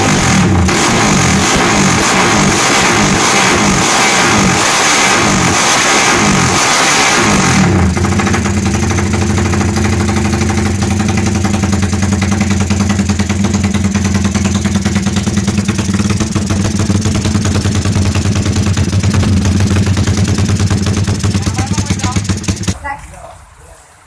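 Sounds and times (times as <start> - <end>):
motorcycle engine idling: 7.2 - 22.8.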